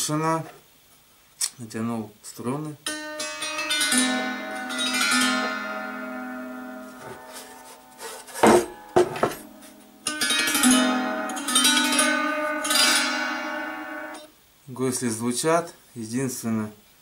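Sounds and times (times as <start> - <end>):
psaltery strings strummed: 2.8 - 14.3.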